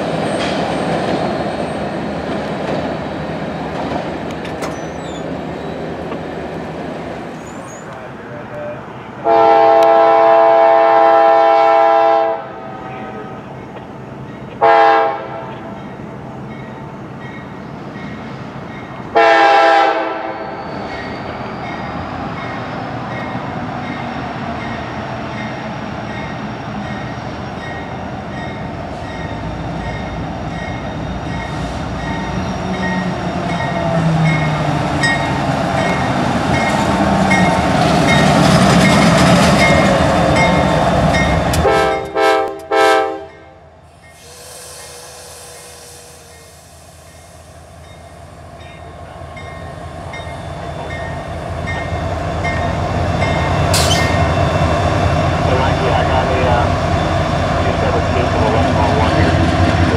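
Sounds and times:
locomotive engine and wheel rumble: 0.0s - 9.2s, 43.3s - 59.9s
locomotive air horn blasts: 9.2s - 12.6s, 14.6s - 15.5s, 19.1s - 20.4s, 41.6s - 43.5s.

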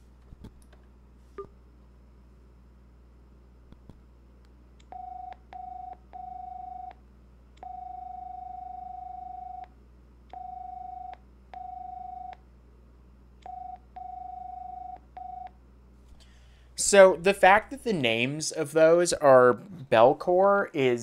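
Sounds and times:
phone ringtone rings: 7.7s - 9.6s, 10.4s - 12.4s, 13.5s - 15.5s.

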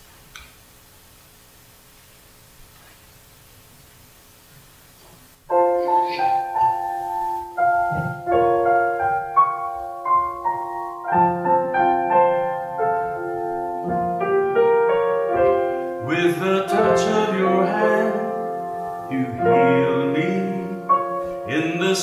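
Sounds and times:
piano playing chords and melody: 5.5s - 22.0s.

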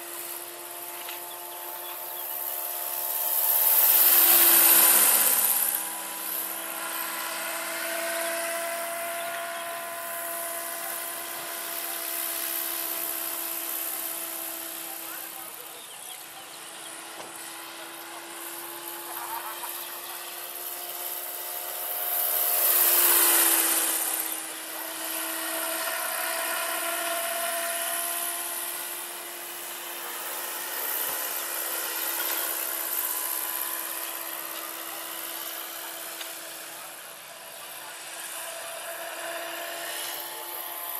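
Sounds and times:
rotor whoosh: 0.0s - 11.1s
electric motor and gearbox whine: 0.0s - 40.9s.

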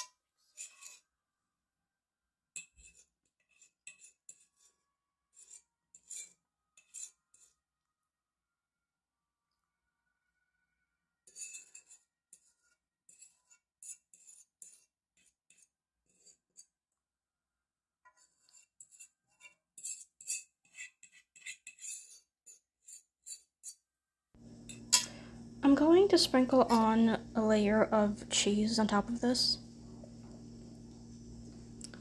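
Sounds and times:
utensil scraping casserole dish: 0.0s - 1.0s, 2.6s - 4.7s, 5.3s - 7.6s, 11.2s - 16.8s, 18.1s - 23.8s, 26.4s - 27.2s.

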